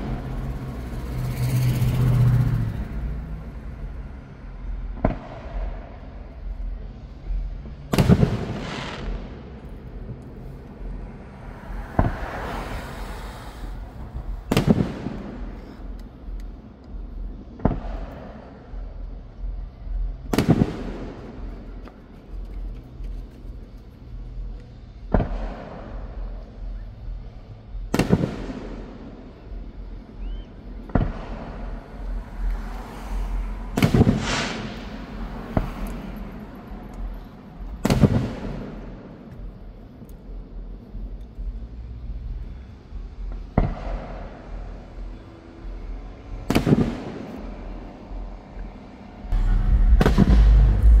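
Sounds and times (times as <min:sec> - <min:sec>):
fireworks booming: 0:07.9 - 0:10.2, 0:11.4 - 0:15.8, 0:20.3 - 0:21.5, 0:27.9 - 0:29.0, 0:30.8 - 0:32.4, 0:33.7 - 0:36.4, 0:37.6 - 0:39.3, 0:46.5 - 0:47.6, 0:49.3 - 0:51.0
loud low rumble: 0:49.2 - 0:51.0.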